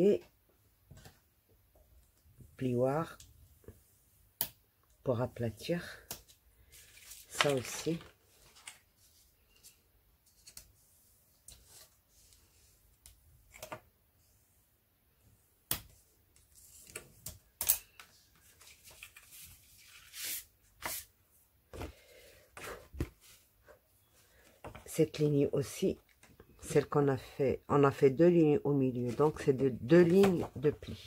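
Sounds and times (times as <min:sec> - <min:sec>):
paper rustling and scraping: 0:06.6 - 0:12.8, 0:18.3 - 0:21.1.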